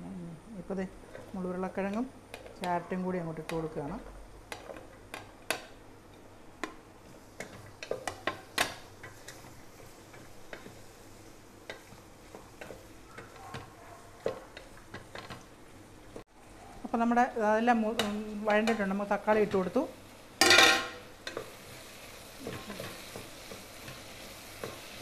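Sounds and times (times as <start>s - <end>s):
wooden spoon knocking and scraping pot: 1.0s - 6.8s, 7.4s - 11.0s, 11.6s - 15.5s.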